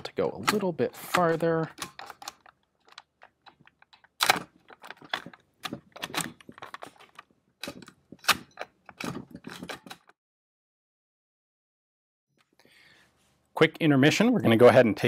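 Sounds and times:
rifle action clicking and clacking: 0.4 - 10.1.

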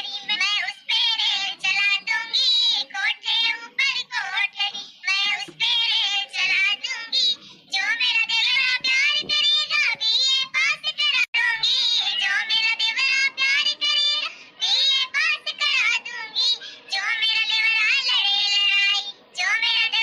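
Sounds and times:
high cartoon voice singing folk song: 0.0 - 20.0.

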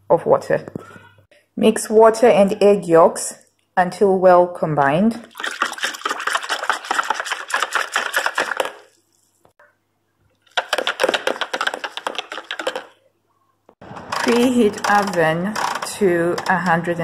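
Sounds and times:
whisk beating in plastic jug: 5.3 - 9.0, 10.5 - 13.0.

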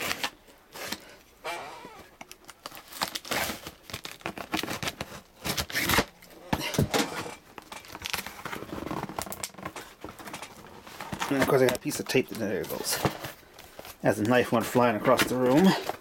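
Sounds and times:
cardboard rustling: 2.1 - 16.0
knife slitting packing tape: 2.4 - 6.1.

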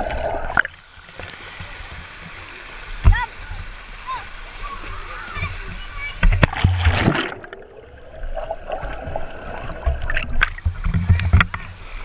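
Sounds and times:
pool water splashing: 0.0 - 12.0
muffled underwater moving water: 4.7 - 12.0.

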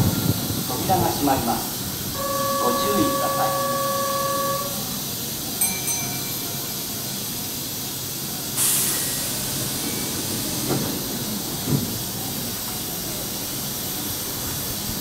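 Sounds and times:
train idling hum: 0.0 - 15.0
compressed air hiss: 7.1 - 15.0.

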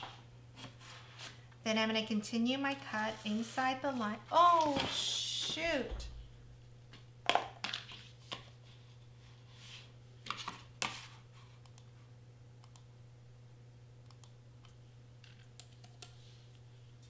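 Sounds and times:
computer mouse clicking: 11.6 - 11.9, 12.6 - 12.9, 14.0 - 14.4, 15.6 - 16.2.

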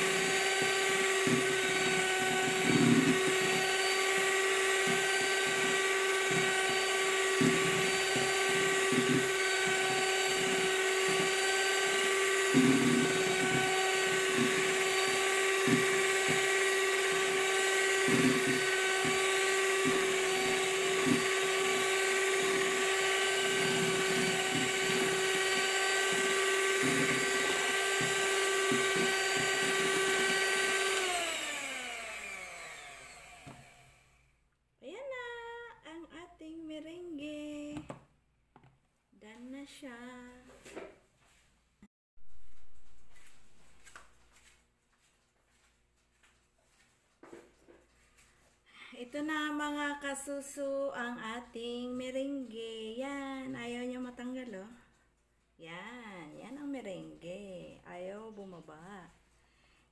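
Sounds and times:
electric mixer whining: 0.0 - 34.3.

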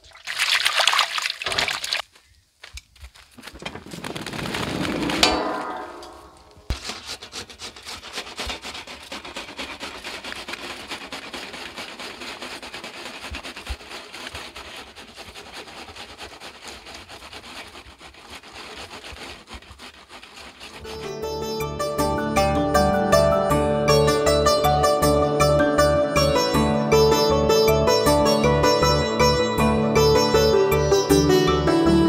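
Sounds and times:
box graters rasping: 6.7 - 20.9.

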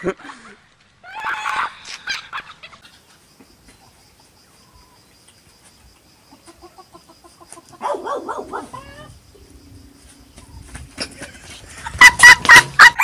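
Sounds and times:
insects chirping: 0.8 - 13.0
rooster clucking: 11.0 - 13.0.

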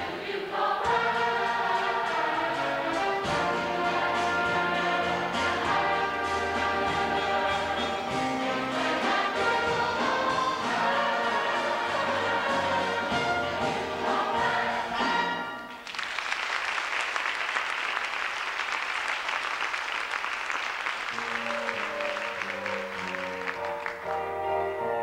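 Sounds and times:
choir singing with accompaniment: 0.0 - 15.8
audience applause: 15.8 - 24.2
instrumental introduction music: 21.1 - 25.0.

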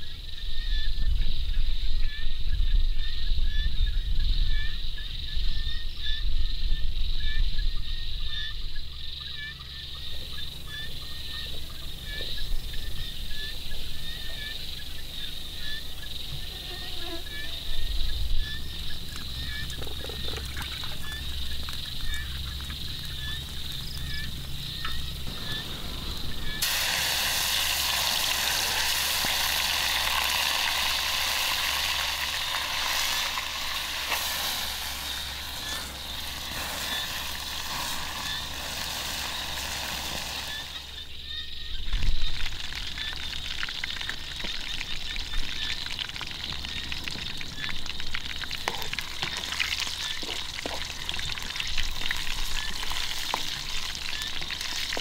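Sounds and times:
faint chirping: 0.0 - 45.9
loud sizzle of deep-frying: 8.8 - 55.0.

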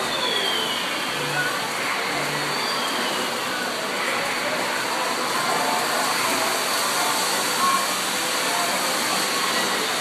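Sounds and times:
murmur of distant voices: 0.0 - 10.0
noisy background din: 0.0 - 10.0.

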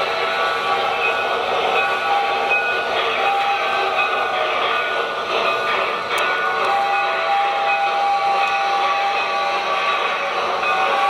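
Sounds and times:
model steam locomotive running: 0.0 - 11.0.

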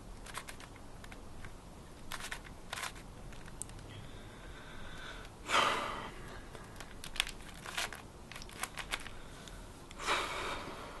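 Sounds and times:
plastic cube rasping: 0.2 - 3.8, 6.6 - 9.2
plastic puzzle cube clicking: 0.2 - 3.8, 6.6 - 9.2.

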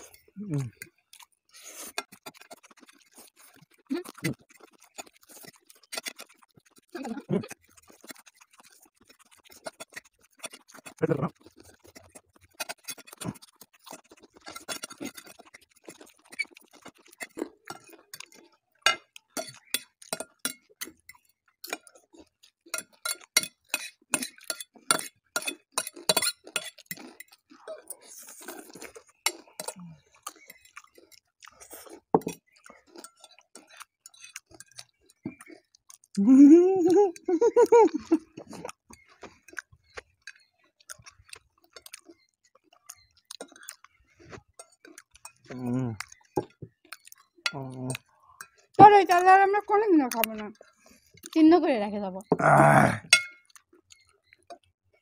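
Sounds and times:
chewing and slurping: 0.0 - 51.6, 52.2 - 55.0
forks clinking on plates: 22.8 - 27.1, 53.2 - 53.5.

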